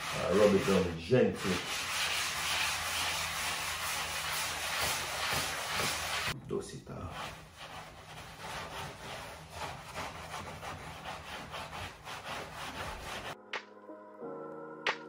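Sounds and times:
sanding sponge rubbing wood: 0.0s - 6.4s, 7.0s - 13.4s
music: 13.4s - 15.0s.

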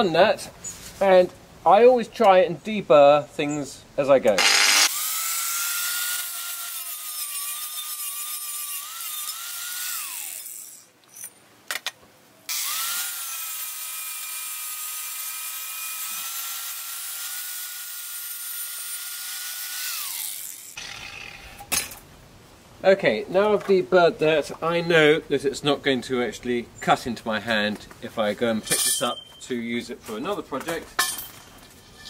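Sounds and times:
angle grinder grinding metal: 4.4s - 10.9s, 12.5s - 21.7s.

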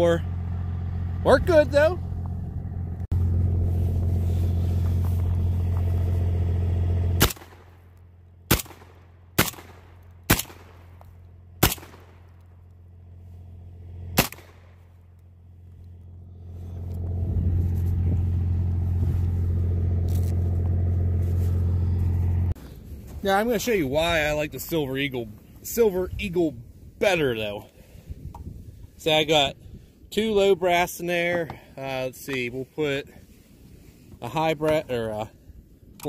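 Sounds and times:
steady low hum: 0.0s - 32.3s
shotgun shots: 7.2s - 7.8s, 8.5s - 11.0s, 11.6s - 12.3s, 14.2s - 14.8s.

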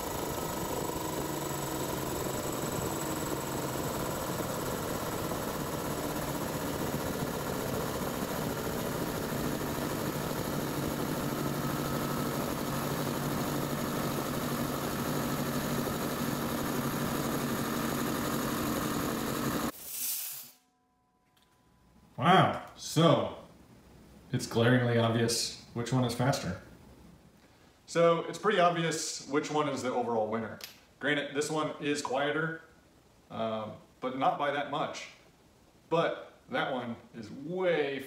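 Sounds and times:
air compressor running: 0.0s - 20.6s
brief air hiss: 19.7s - 20.7s.

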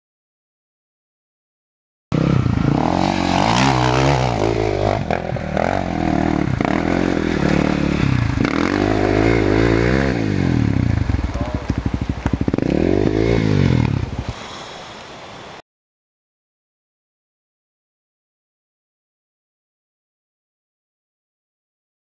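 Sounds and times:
dirt bike engine revving: 2.1s - 14.3s.

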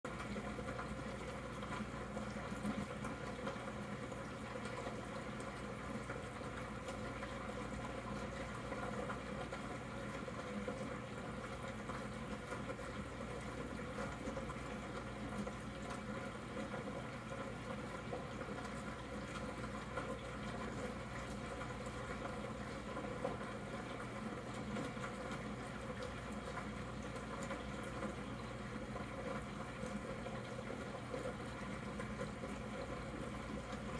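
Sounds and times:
aquarium air bubbles: 0.1s - 33.9s.

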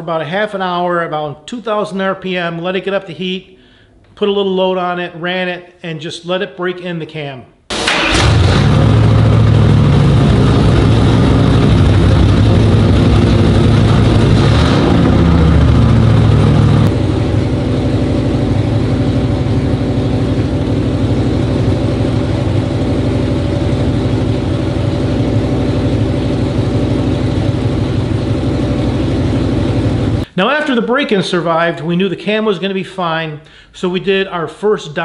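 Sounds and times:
engine running on dyno: 7.7s - 30.3s.

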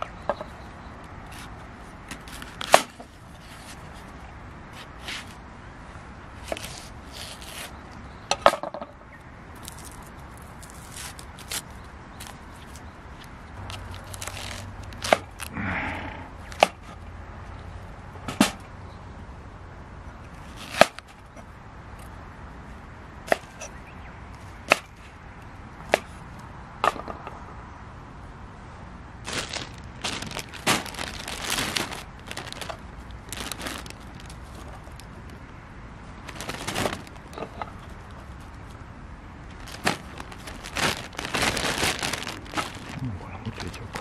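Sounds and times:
rustling and light clatter: 0.0s - 5.5s, 9.6s - 15.5s, 29.2s - 35.5s, 36.2s - 44.0s.

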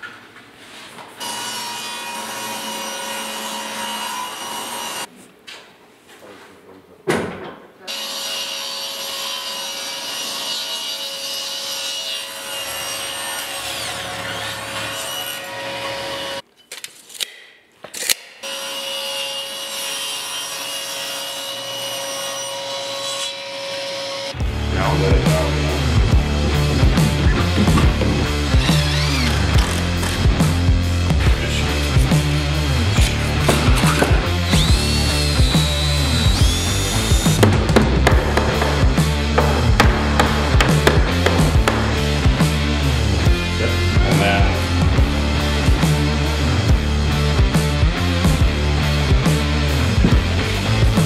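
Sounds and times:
power saw cutting wood: 1.2s - 5.1s, 7.9s - 16.4s, 25.0s - 46.4s
table saw motor whine: 28.1s - 30.2s, 33.9s - 37.4s.

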